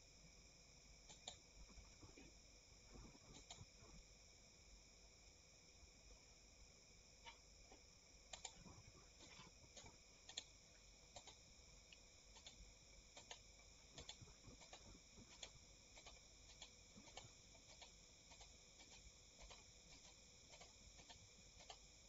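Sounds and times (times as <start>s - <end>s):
low steady hiss: 0.0s - 22.0s
computer mouse clicks: 1.1s - 1.4s, 3.0s - 3.9s, 8.3s - 21.9s.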